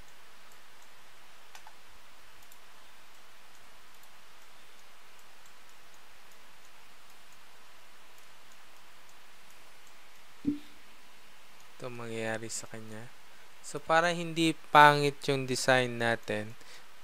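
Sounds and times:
computer mouse ticking: 0.0 - 10.6.

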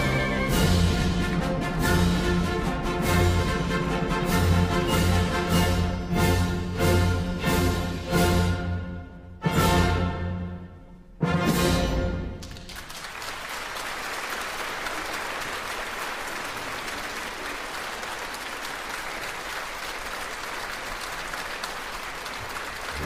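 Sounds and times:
audience applauding: 12.4 - 23.0.

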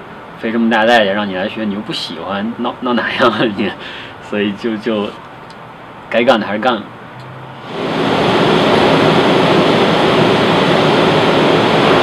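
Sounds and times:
woodshop machinery rushing noise: 7.6 - 12.0.

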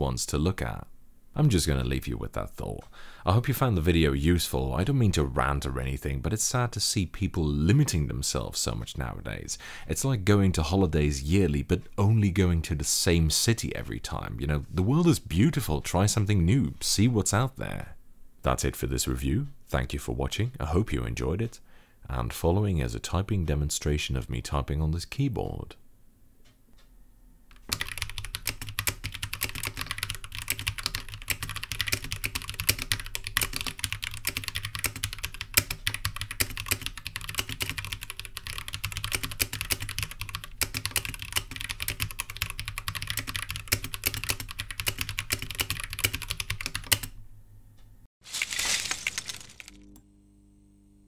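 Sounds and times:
fast keyboard typing: 27.5 - 47.1.

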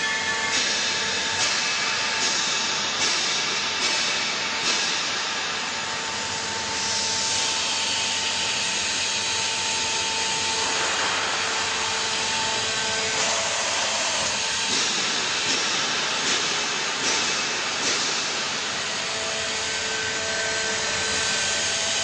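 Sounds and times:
hydraulic baler whining with hiss: 0.0 - 22.0.

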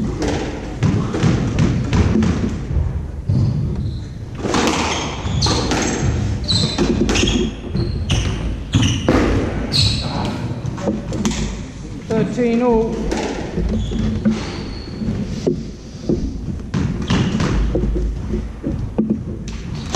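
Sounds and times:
shoes squeaking on wooden floor: 0.0 - 19.9
squash ball strikes echoing: 0.0 - 19.9.

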